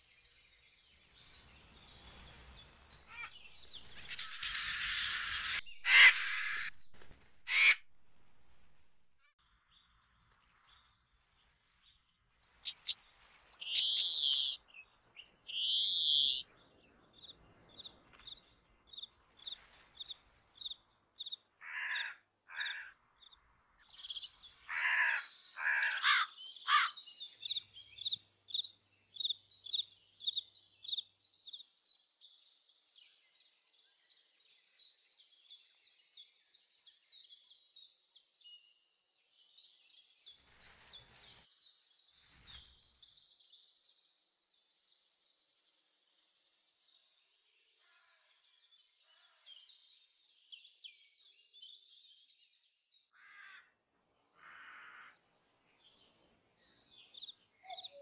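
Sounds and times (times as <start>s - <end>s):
harsh bird calls: 1.6s - 7.9s, 12.6s - 16.4s, 23.8s - 28.6s
rapid bird trill: 12.6s - 14.6s.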